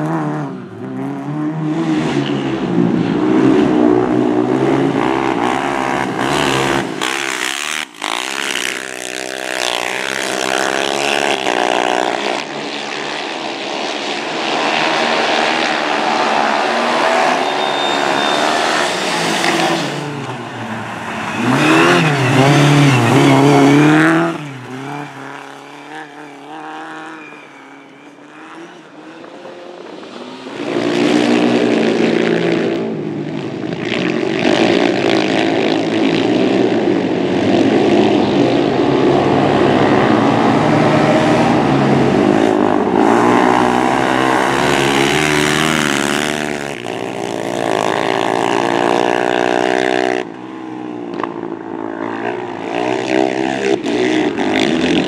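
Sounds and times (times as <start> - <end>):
quad bike engines revving: 0.0 - 55.0
car engine revving hard: 14.4 - 27.2, 34.0 - 50.3.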